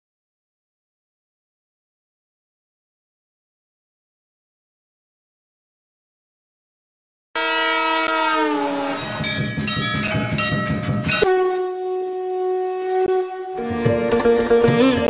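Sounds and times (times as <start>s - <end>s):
train horn: 7.4s - 9.2s, 11.2s - 15.0s
rail wheels clattering: 8.8s - 11.6s
sitar music: 8.8s - 15.0s.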